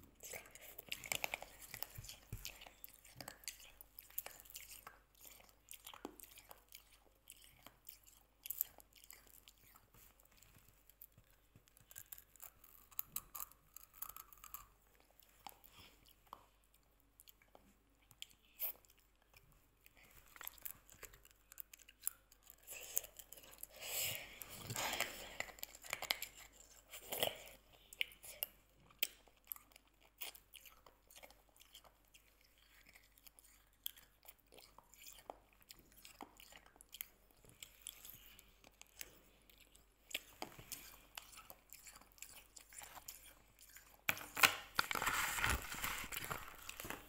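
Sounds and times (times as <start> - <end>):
hard candy crunching in teeth: 10.8 - 16.4, 17.2 - 47.0.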